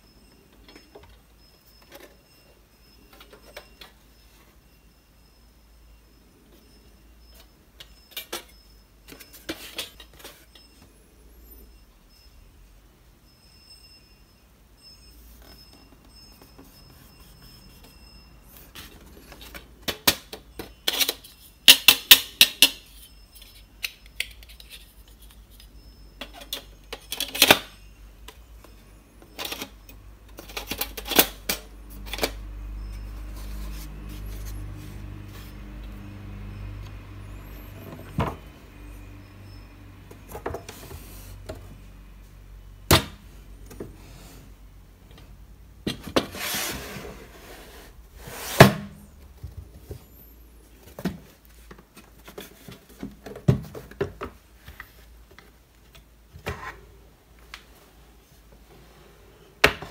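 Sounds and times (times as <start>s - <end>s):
drawer sliding shut: 46.0s - 49.0s.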